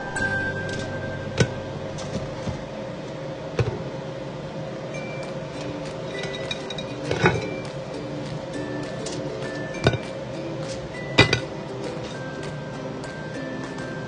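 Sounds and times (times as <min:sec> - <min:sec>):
steady hum: 0:00.0 - 0:14.0
kitchenware clinks: 0:06.0 - 0:07.7, 0:08.9 - 0:10.2, 0:11.0 - 0:12.6.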